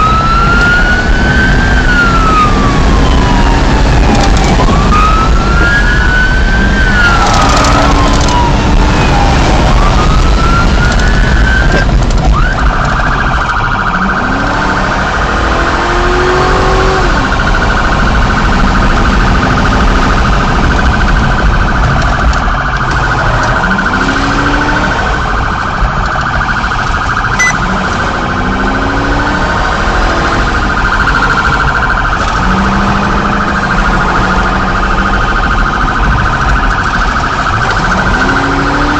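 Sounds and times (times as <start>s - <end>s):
car engine accelerating: 0.0s - 12.5s, 13.2s - 38.9s
police siren wailing: 0.0s - 38.9s
road noise: 0.0s - 38.9s
steady high siren tone: 0.0s - 38.9s.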